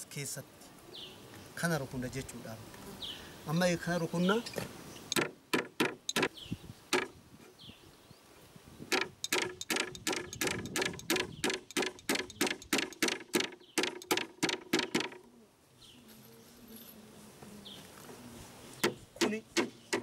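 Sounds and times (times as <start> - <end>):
hammer driving nails into wood: 5.1 - 6.3, 6.9 - 7.1, 8.9 - 15.2, 18.8 - 20.0.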